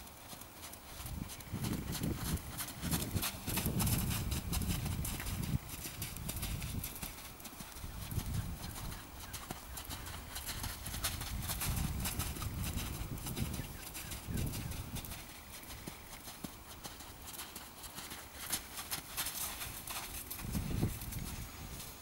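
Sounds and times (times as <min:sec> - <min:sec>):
hoofbeats on sand: 0:00.0 - 0:22.0.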